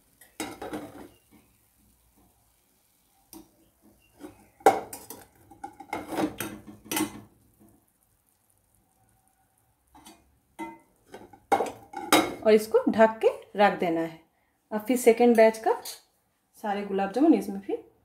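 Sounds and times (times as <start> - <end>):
metal skimmer clinking on pan: 10.0 - 12.4.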